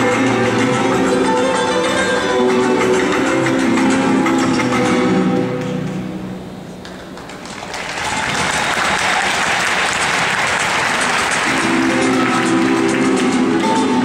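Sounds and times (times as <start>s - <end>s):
flamenco guitar music: 0.0s - 7.4s, 9.2s - 14.0s
audience applauding: 6.8s - 13.6s.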